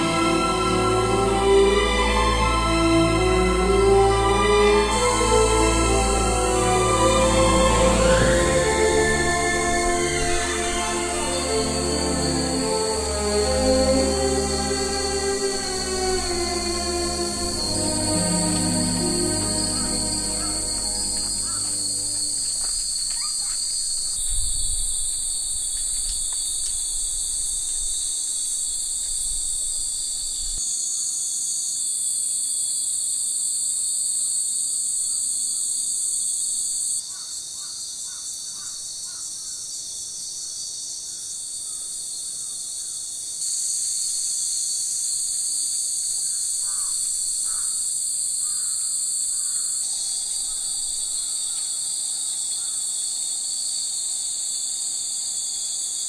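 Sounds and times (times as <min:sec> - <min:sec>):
cicadas buzzing: 0:00.0 - 0:56.0.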